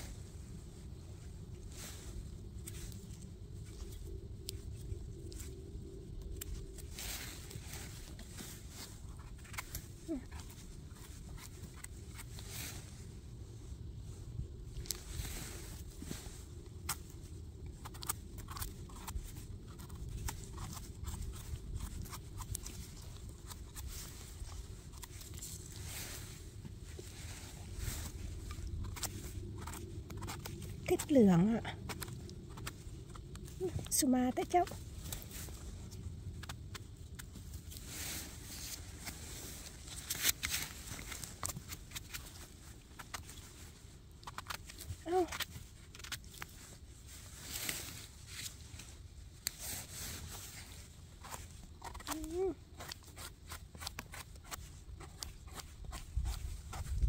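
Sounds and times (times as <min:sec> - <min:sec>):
small clicks and crackles: 0:00.0 - 0:57.0
steady low rumble: 0:00.0 - 0:57.0
knife scraping mushroom stem: 0:27.0 - 0:31.1, 0:51.2 - 0:57.0.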